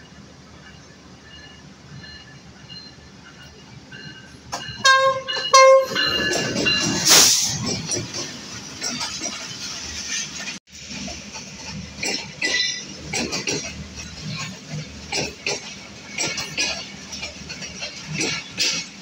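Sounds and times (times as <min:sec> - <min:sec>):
loud burst of hiss: 0:07.1 - 0:07.6.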